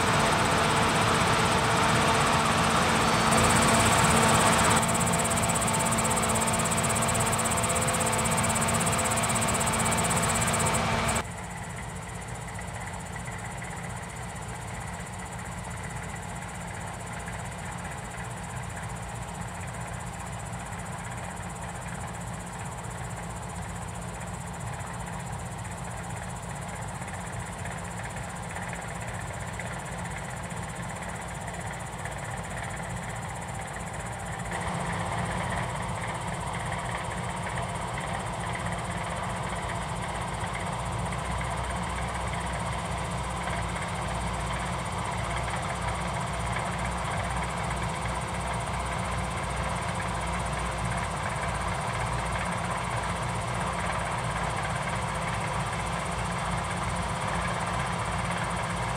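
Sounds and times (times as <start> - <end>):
held machine whine: 0.0 - 11.2, 28.8 - 58.9
combine harvester engine drone: 0.0 - 58.9.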